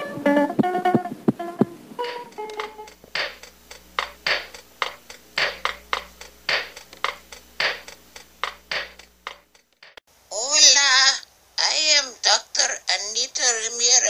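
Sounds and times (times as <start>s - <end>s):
person speaking: 10.3s - 14.0s.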